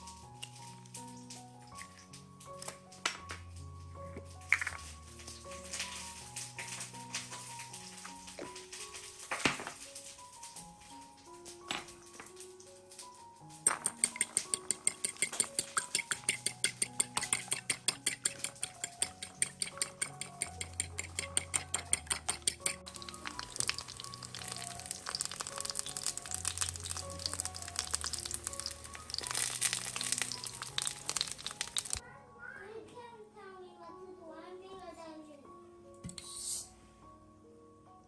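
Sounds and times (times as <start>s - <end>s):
background music with steady beat: 9.8s - 32.6s
eggplant sizzling in oil: 13.8s - 32.0s.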